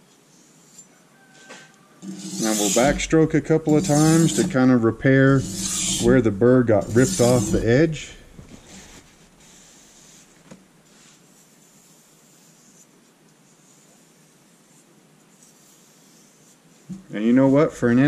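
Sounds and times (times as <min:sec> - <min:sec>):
knife rubbing and scratching: 0:02.0 - 0:09.1, 0:15.4 - 0:18.0.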